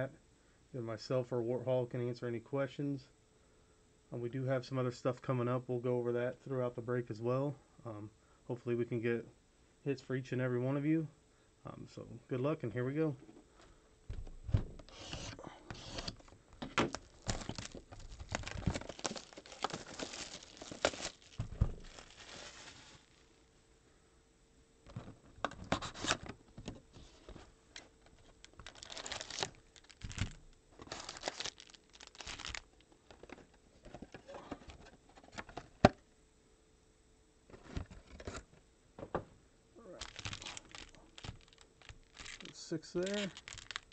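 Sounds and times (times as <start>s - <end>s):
cardboard box and foil rustling: 14.9s - 23.4s, 28.1s - 35.4s, 40.0s - 43.9s
plastic shrink wrap crinkling: 14.9s - 23.4s, 28.0s - 33.5s, 39.9s - 43.9s.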